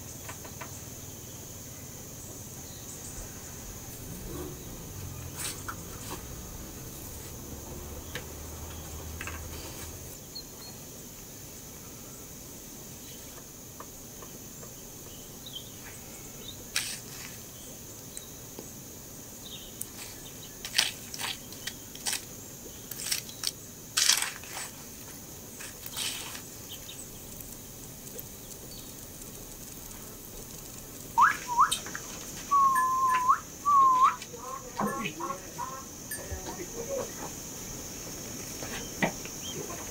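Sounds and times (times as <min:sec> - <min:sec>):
insects droning: 0:00.0 - 0:39.9
snaps and crackles: 0:16.7 - 0:17.3, 0:19.8 - 0:32.4
whistle-like calls: 0:31.1 - 0:31.9, 0:32.5 - 0:34.4.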